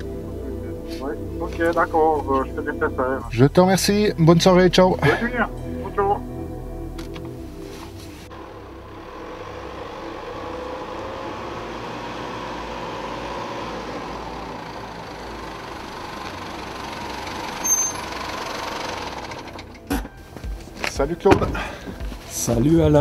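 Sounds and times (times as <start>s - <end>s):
truck engine and tyre noise: 6.9s - 23.0s
short high squeak: 17.6s - 18.3s.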